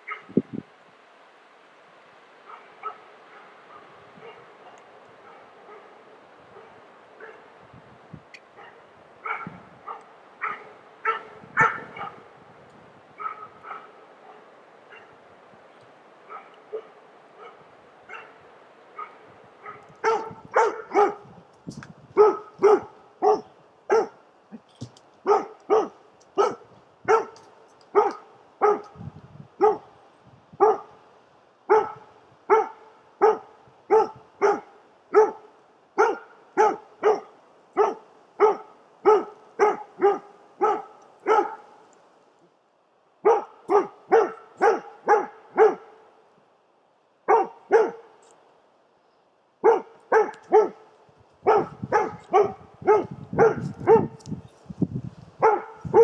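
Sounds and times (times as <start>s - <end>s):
dog barking: 0.0s - 0.4s, 2.4s - 7.5s, 8.5s - 12.3s, 13.2s - 15.2s, 16.3s - 21.3s, 22.2s - 24.6s, 25.2s - 29.0s, 29.6s - 29.9s, 30.6s - 31.0s, 31.7s - 41.8s, 43.2s - 46.0s, 47.2s - 48.2s, 49.6s - 54.2s, 55.4s - 56.0s.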